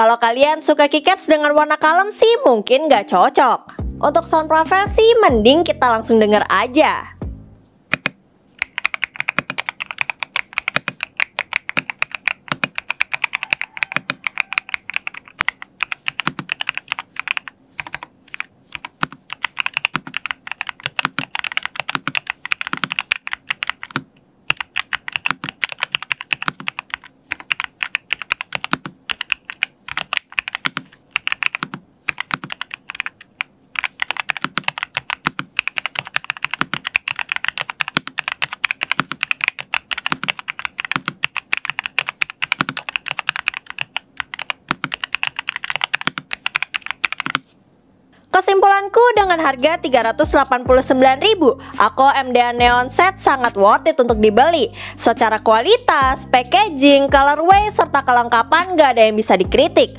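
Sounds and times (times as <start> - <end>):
mechanical keyboard typing: 7.9 - 47.5.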